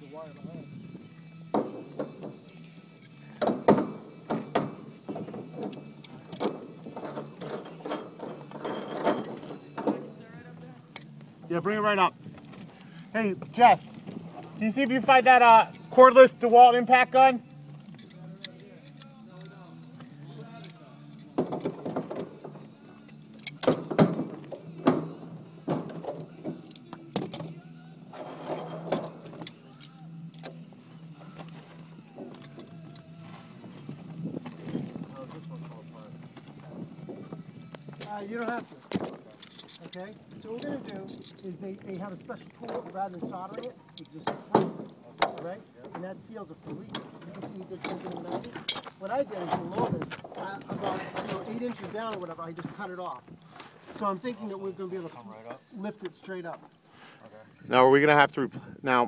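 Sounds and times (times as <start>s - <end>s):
metal tools clanking on pipes: 3.0s - 10.2s, 28.1s - 30.5s, 38.0s - 54.8s
tools clicking on metal fittings: 39.4s - 41.5s, 43.4s - 44.4s.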